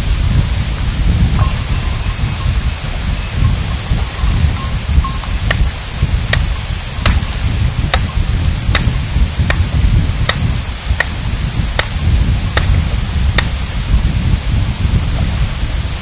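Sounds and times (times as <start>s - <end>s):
low rumble: 0.0s - 16.0s
rock hammer striking stone: 5.5s - 8.2s, 8.8s - 11.2s, 11.8s - 13.6s.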